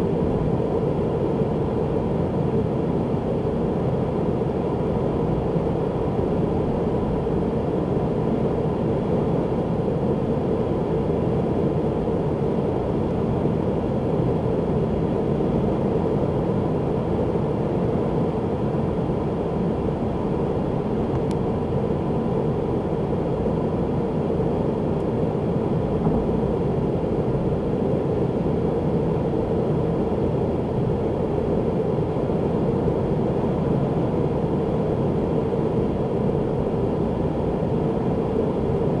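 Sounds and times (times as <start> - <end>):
car road and engine noise: 18.9 - 32.4.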